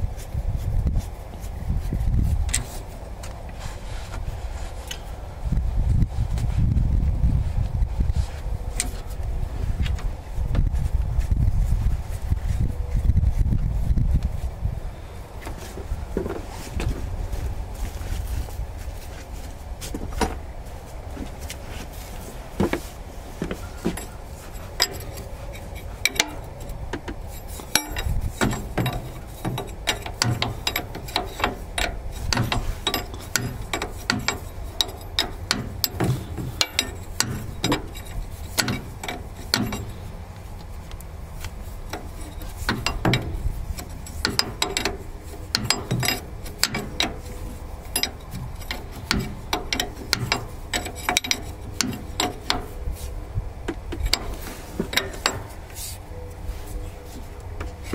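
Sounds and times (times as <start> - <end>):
wrench clicking on bolts: 23.9 - 40.1, 41.0 - 53.1, 53.7 - 55.6.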